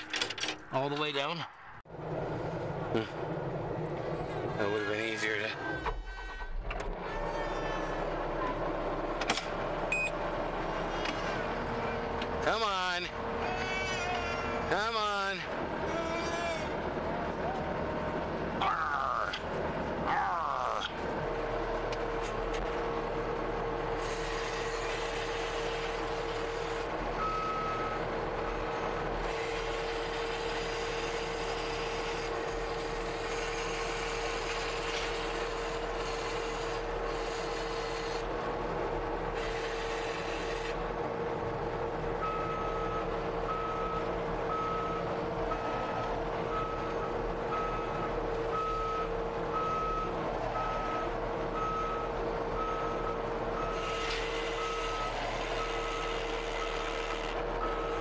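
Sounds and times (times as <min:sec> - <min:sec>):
skid steer engine and hydraulic hum: 0:01.6 - 0:58.0
backup alarm beeping: 0:09.9 - 0:10.2.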